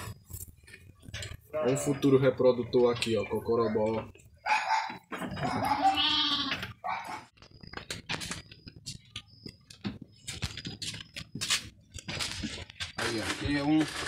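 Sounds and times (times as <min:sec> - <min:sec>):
sheep bleating: 0:05.6 - 0:06.7.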